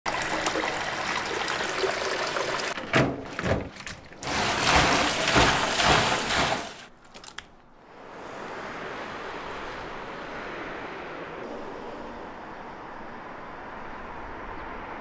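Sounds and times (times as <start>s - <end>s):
tap water pouring into basin: 0.1s - 6.9s
heavy knocks and splashes: 2.5s - 6.9s.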